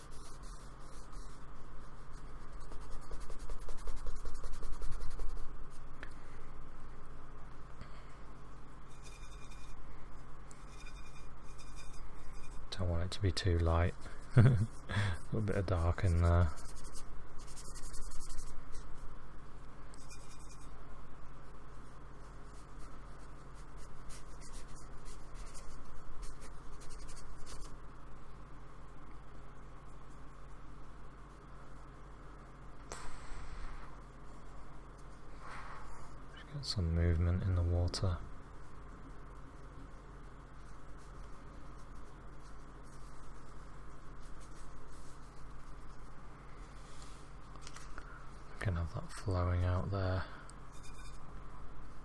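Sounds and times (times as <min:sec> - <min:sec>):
paintbrush scrubbing on paper: 0:00.0 - 0:05.9, 0:08.9 - 0:09.8, 0:10.5 - 0:19.1, 0:20.0 - 0:20.8, 0:21.8 - 0:27.8, 0:40.6 - 0:47.4.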